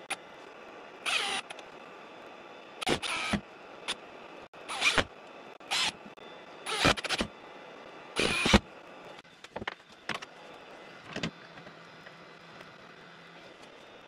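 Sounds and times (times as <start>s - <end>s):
cordless drill whirring: 1.0s - 1.6s, 2.8s - 4.0s, 4.7s - 7.3s, 8.1s - 8.7s.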